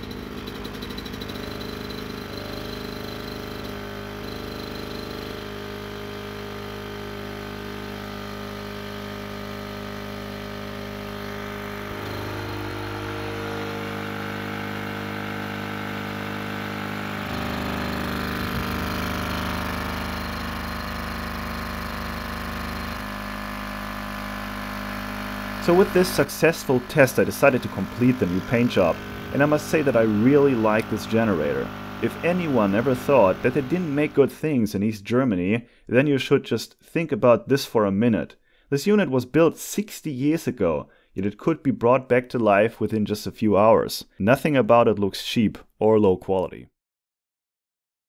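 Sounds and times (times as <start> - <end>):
generator petrol engine running: 0.0 - 34.4.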